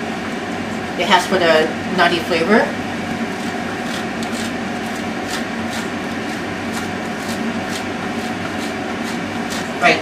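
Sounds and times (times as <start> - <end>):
steady background hum: 0.0 - 10.0
cheese scraping on metal grater: 3.4 - 10.0.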